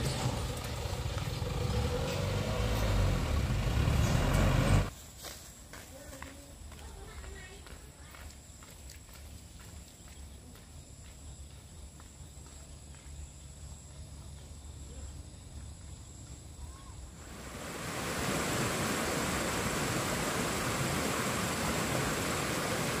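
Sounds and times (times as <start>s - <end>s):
rain falling: 0.0s - 4.9s, 17.2s - 23.0s.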